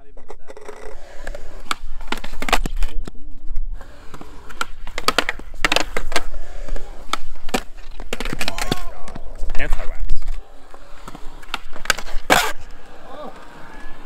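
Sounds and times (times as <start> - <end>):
skateboard wheels rolling on concrete: 0.0 - 14.0
skateboard deck clacks and slaps: 3.8 - 14.0.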